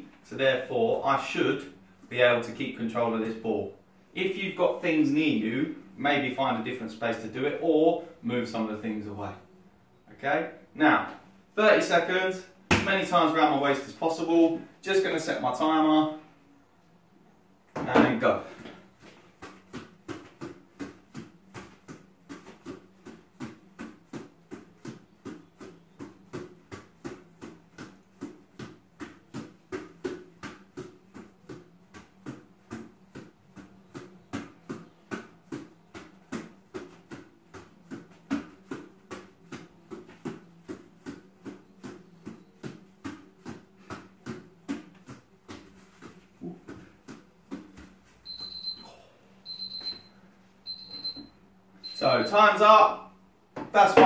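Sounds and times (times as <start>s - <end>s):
football slapping into hands: 12.7s - 13.1s.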